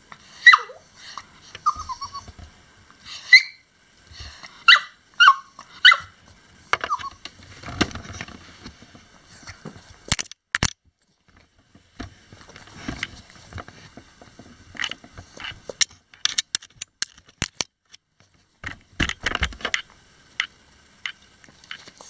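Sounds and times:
dog claws clicking and scraping: 9.4s - 20.5s.

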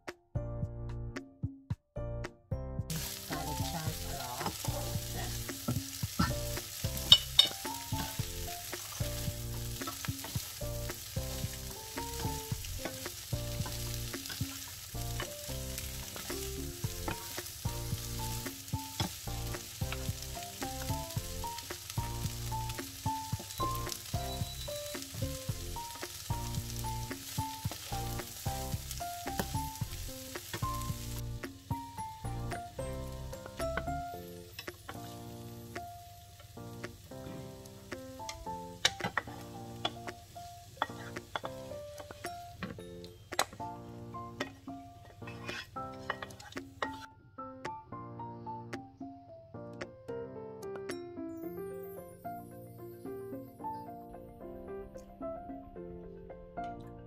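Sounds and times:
food sizzling in frying pan: 2.9s - 47.1s
spatula scraping and knocking pan: 3.0s - 31.9s, 38.3s - 40.2s, 40.8s - 47.1s.

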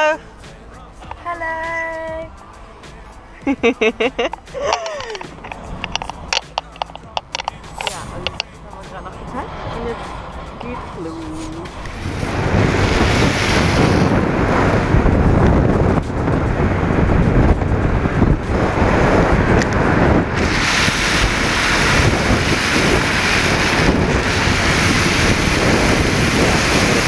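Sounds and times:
wind rushing over microphone: 4.4s - 27.0s
tyres hissing through water: 20.3s - 27.0s.

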